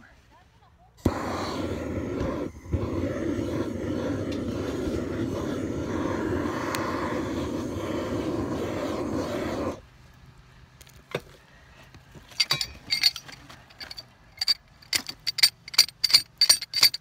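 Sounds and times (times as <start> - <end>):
torch click: 1.0 - 9.8
propane torch flame burning: 1.0 - 11.0.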